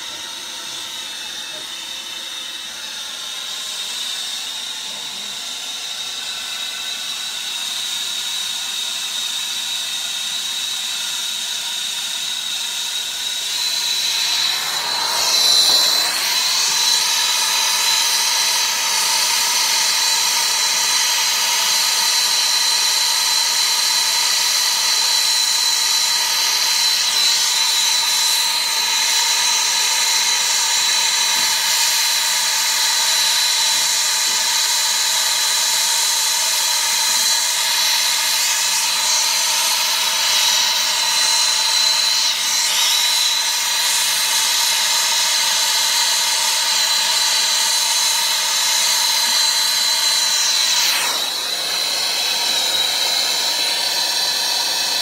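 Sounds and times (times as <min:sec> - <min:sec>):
constant high whine: 0:00.0 - 0:55.0
torch flame hissing: 0:12.2 - 0:22.7, 0:25.6 - 0:55.0.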